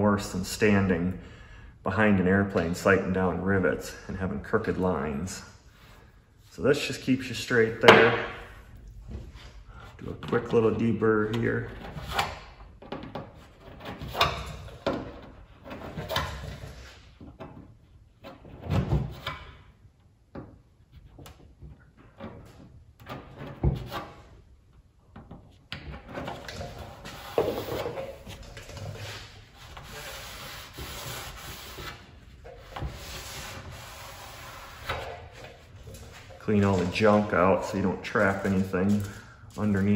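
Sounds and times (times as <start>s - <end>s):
cloth rubbing on metal: 27.0s - 35.0s.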